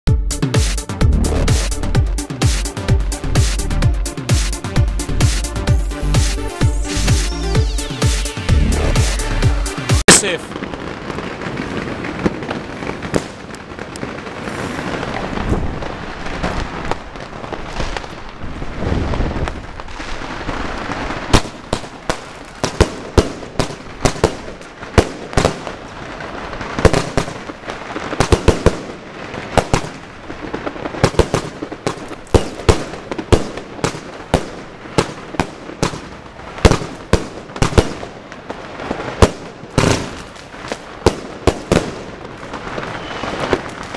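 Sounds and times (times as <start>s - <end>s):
fireworks bangs: 0.5s - 43.9s
fireworks hissing and crackling: 0.6s - 43.9s.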